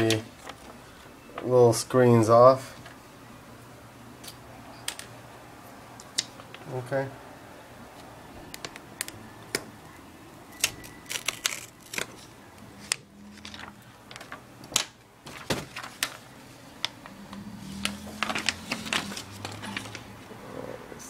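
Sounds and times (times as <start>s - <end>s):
plastic film crinkling and crackling: 0.0s - 0.8s, 8.5s - 9.6s, 10.6s - 20.3s.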